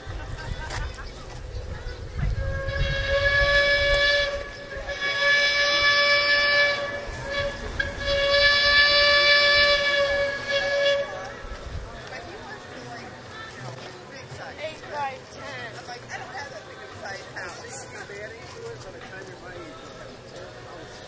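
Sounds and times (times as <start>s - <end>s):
steam whistle blasts: 2.3s - 11.4s.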